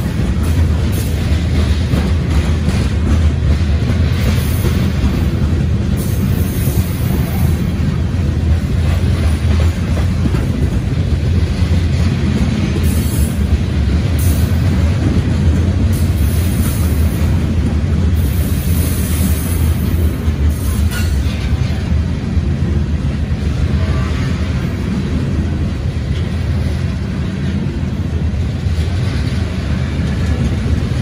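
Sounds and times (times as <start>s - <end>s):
freight train wheels rumbling: 0.0s - 31.0s.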